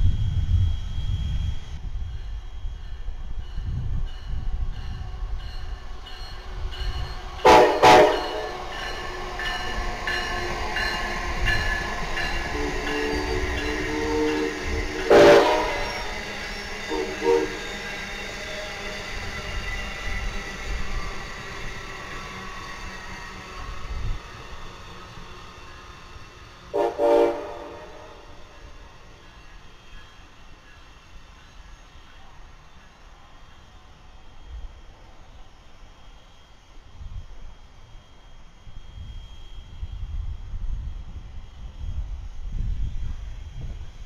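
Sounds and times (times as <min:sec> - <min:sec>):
rumble of passing train: 0:00.0 - 0:44.0
steam locomotive whistle blasts: 0:07.4 - 0:18.4, 0:26.7 - 0:28.8
steam locomotive puffing: 0:07.4 - 0:21.2.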